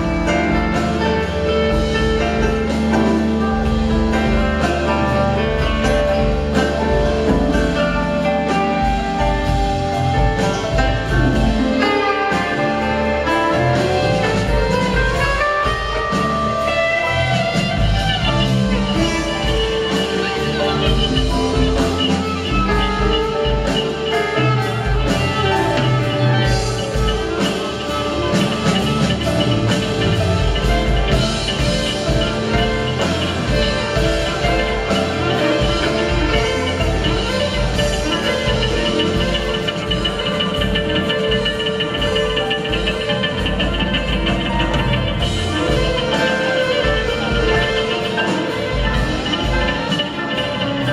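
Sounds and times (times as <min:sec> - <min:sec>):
drum kit steady beat: 0:00.0 - 0:50.9
live band playing: 0:00.0 - 0:50.9.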